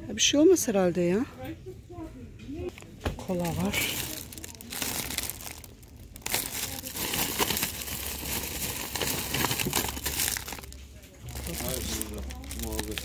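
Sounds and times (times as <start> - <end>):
plastic bags crinkling: 3.2 - 13.0.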